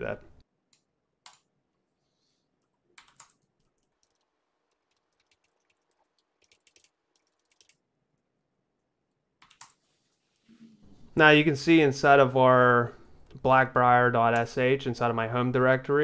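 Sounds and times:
faint computer keyboard typing: 0:02.6 - 0:07.8, 0:09.4 - 0:09.8.

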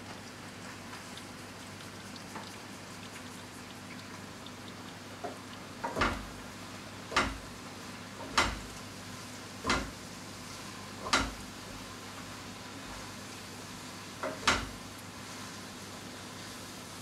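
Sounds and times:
faint steady hiss: 0:00.0 - 0:17.0
water drops dripping: 0:07.1 - 0:07.5.

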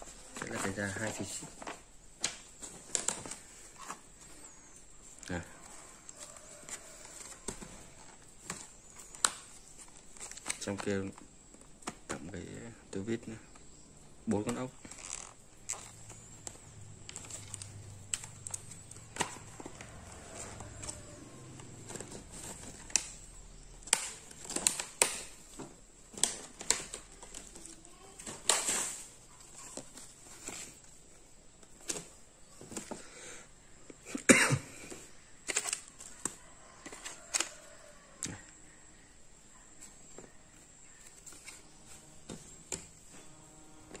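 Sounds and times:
plastic packaging crackles: 0:00.0 - 0:12.4, 0:14.3 - 0:32.9, 0:35.4 - 0:38.4.

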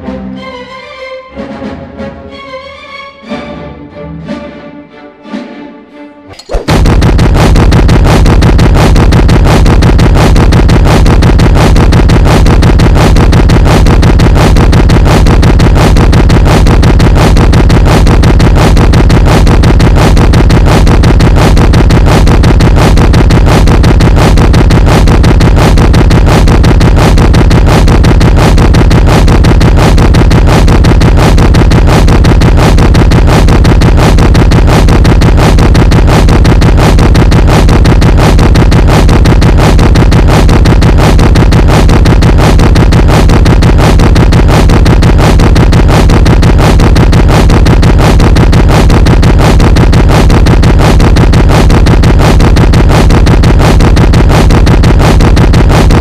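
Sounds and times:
orchestral music: 0:00.0 - 0:06.5
loud distorted music with bass: 0:06.3 - 0:56.0.

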